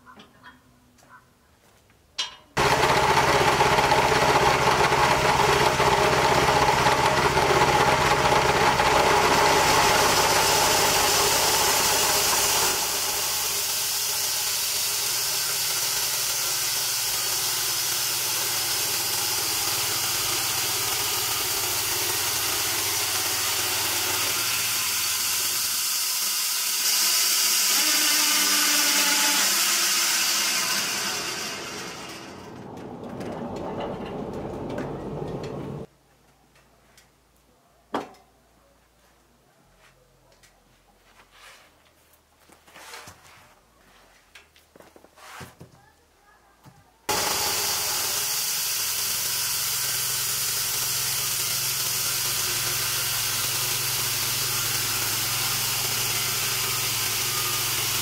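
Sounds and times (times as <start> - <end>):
engine pull-start: 2.6 - 25.5, 26.7 - 35.9
band saw running: 2.6 - 33.3, 47.1 - 58.0
small petrol engine running: 2.6 - 35.9, 47.1 - 58.0.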